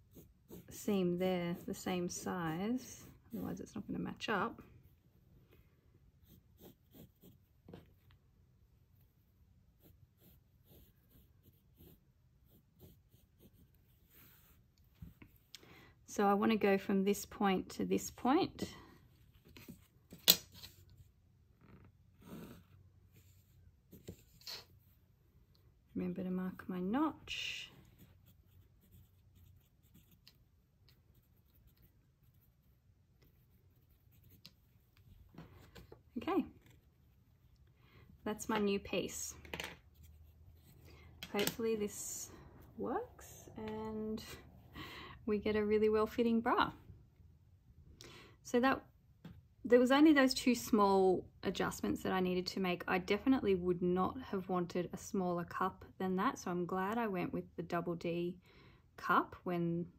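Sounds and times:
pencil scratching on paper: 0:00.0 - 0:03.7, 0:06.2 - 0:08.0, 0:09.3 - 0:14.7, 0:27.8 - 0:35.0.

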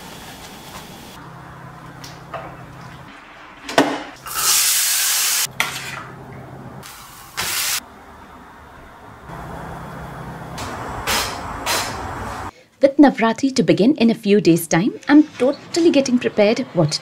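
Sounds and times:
loud hiss: 0:04.3 - 0:05.5, 0:06.8 - 0:07.8.

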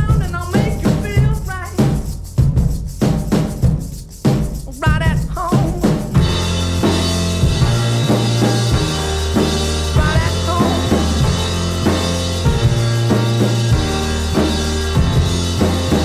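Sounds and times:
drum kit beat: 0:00.0 - 0:16.0
piano chords: 0:06.2 - 0:16.0.

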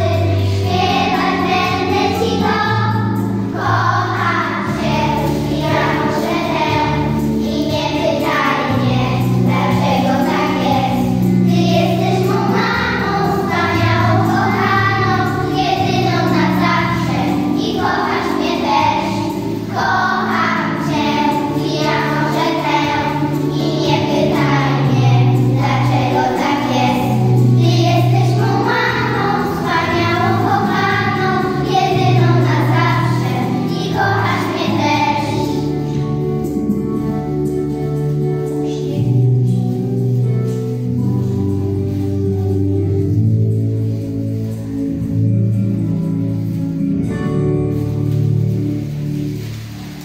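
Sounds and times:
children singing: 0:00.0 - 0:37.1
instrumental backing with bass line: 0:00.0 - 0:50.0.

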